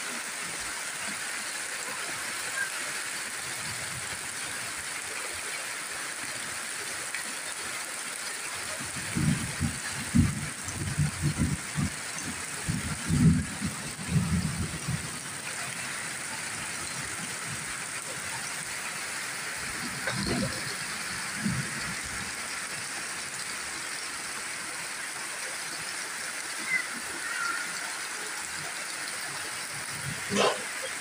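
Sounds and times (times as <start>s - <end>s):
heavy rain on leaves: 0.0s - 31.0s.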